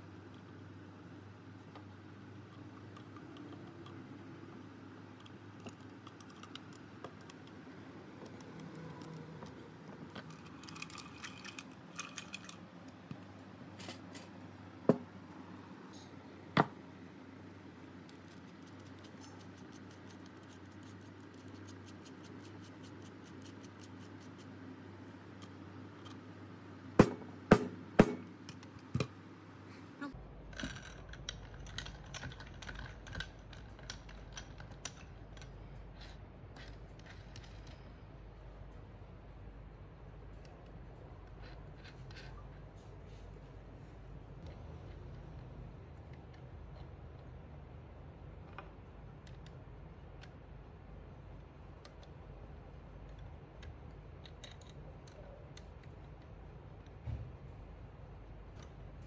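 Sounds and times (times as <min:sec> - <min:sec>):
metal parts and tools clinking: 0:10.0 - 0:13.0, 0:36.5 - 0:38.0
sharp knocks: 0:27.0 - 0:28.3.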